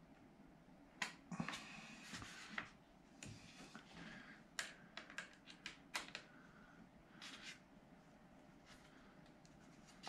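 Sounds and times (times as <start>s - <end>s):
clicks and taps of small parts: 4.6s - 6.3s.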